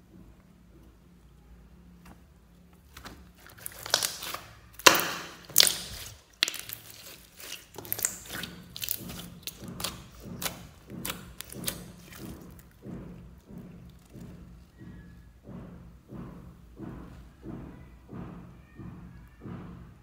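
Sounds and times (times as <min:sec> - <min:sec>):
slime popping and crackling: 0:03.0 - 0:14.6.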